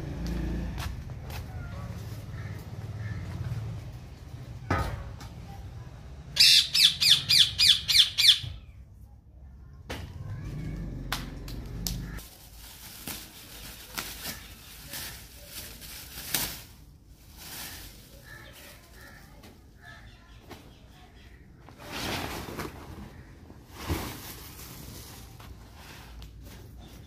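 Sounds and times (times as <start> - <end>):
parrot squawking: 6.4 - 8.7.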